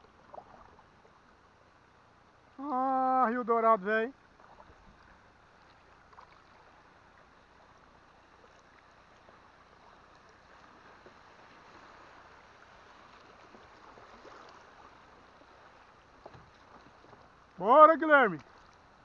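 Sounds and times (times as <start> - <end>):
river water flowing: 0.0 - 19.0.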